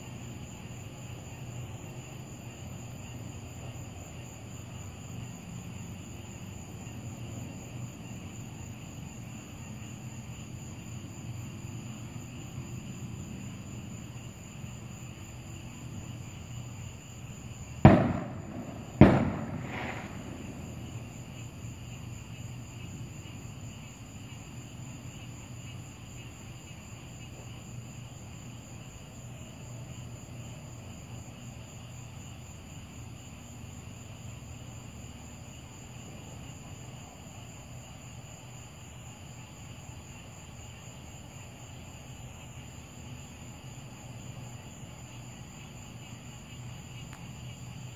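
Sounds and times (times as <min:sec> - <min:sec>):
sharp loud bangs: 0:17.9 - 0:21.1.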